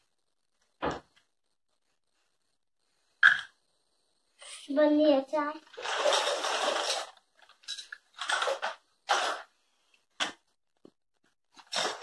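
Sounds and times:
plastic toy pieces clattering: 5.6s - 9.5s, 11.6s - 12.0s
plastic toy rattles: 5.6s - 9.5s.

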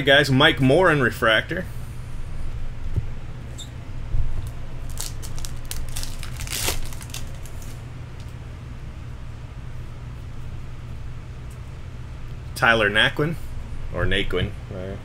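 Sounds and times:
wrappers crinkling: 4.4s - 7.8s
cards being flicked and shuffled: 4.9s - 8.3s.

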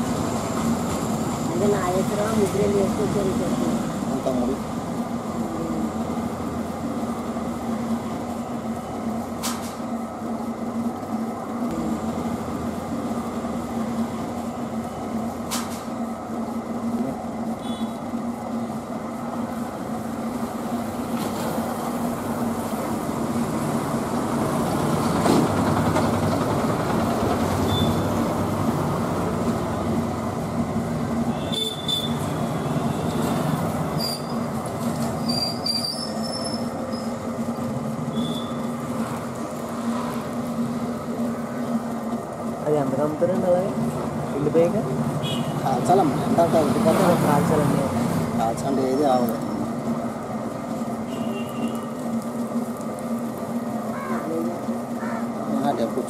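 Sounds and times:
potter's wheel rumbling: 21.0s - 31.3s.

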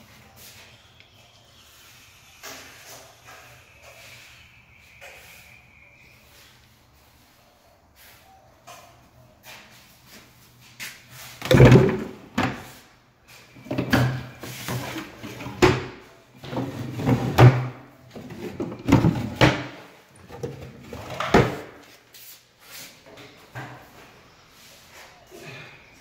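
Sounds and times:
cabinet drawers opening and shutting: 11.4s - 12.7s, 13.6s - 21.8s.

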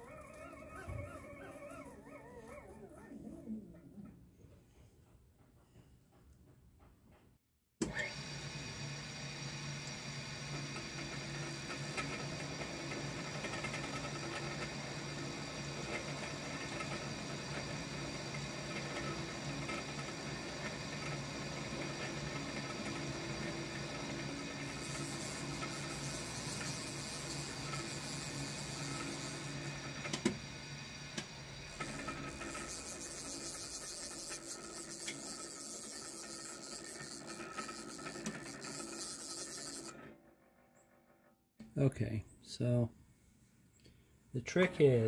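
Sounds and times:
milling machine spindle hum: 0.0s - 3.6s, 7.8s - 40.2s.

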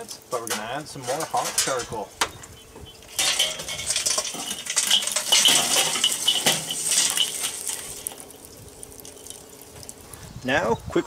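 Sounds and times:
charcoal pieces clinking and tumbling: 2.9s - 10.0s.

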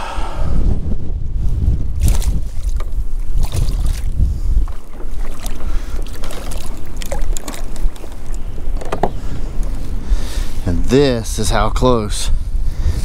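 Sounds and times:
wind buffeting microphone: 0.0s - 13.0s
fish splashing water: 1.9s - 8.9s.

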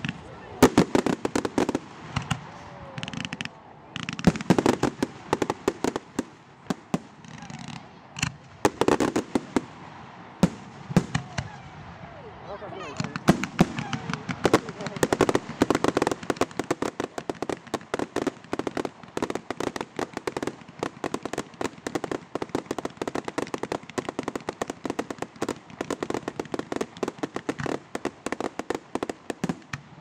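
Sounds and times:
fireworks bangs and crackles: 0.0s - 30.0s.

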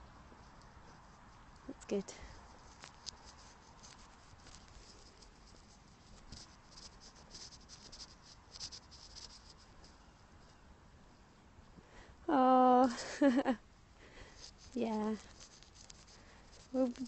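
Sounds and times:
scratching and rustling near microphone: 0.0s - 10.6s, 14.3s - 17.0s.

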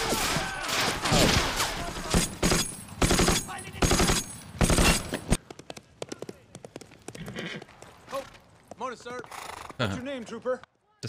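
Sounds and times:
rifle and machine-gun fire: 1.4s - 5.1s.

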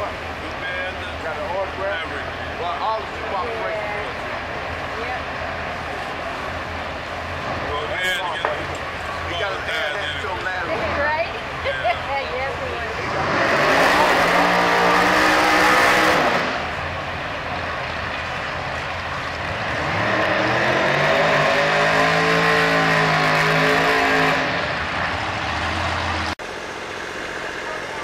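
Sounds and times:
car engine idling: 0.0s - 13.2s, 13.9s - 20.0s, 24.6s - 28.0s
car engine revving hard: 12.9s - 16.8s, 19.5s - 26.4s.

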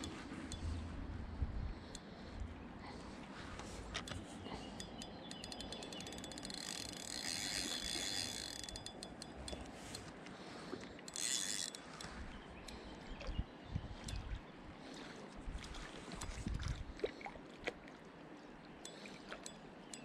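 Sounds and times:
fishing reel clicking: 0.0s - 0.8s, 4.0s - 10.1s, 11.0s - 12.9s.

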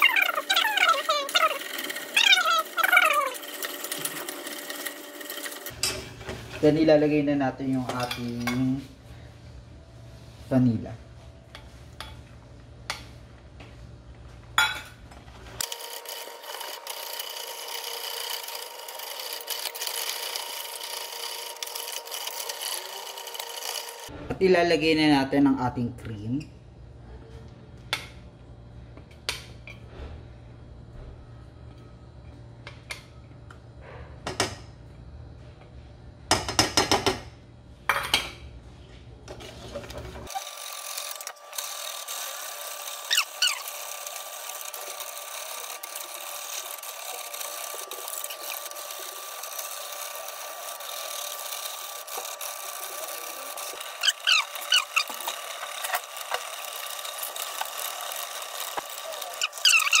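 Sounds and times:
whisk scraping metal pot: 0.0s - 6.7s, 42.8s - 60.0s.

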